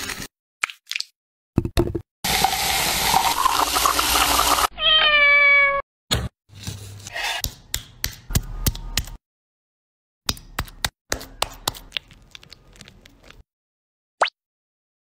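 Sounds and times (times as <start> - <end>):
cat meowing: 4.7 - 5.8.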